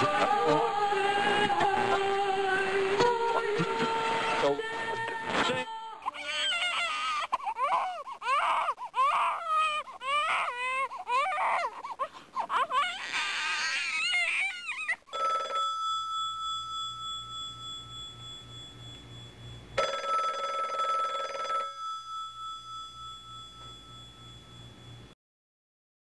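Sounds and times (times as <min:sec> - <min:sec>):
wavering wailing cry: 0:00.0 - 0:15.1
bell ringing: 0:15.2 - 0:25.2.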